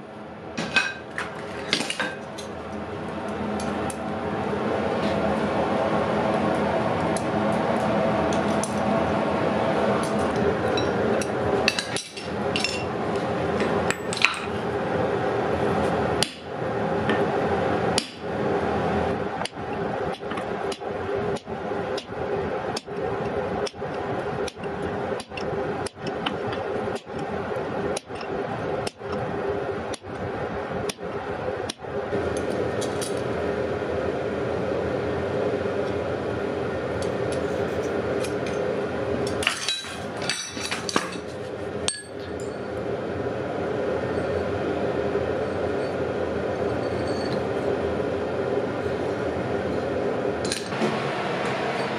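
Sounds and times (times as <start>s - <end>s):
steady hum: 0.0s - 51.9s
hammer striking chisel on hot iron: 18.0s - 18.3s, 19.4s - 22.2s, 22.8s - 27.3s, 27.9s - 29.2s.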